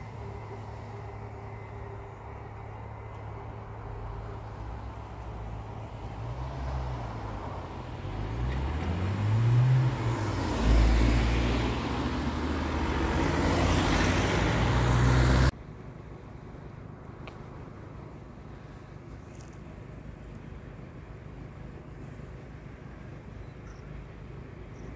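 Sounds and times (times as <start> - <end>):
cars driving past: 3.8 - 15.6.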